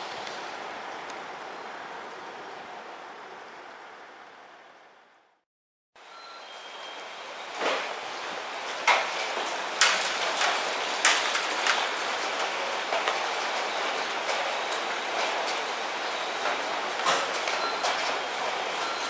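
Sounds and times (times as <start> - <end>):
sharp clicks and clacks: 8.8 - 15.7.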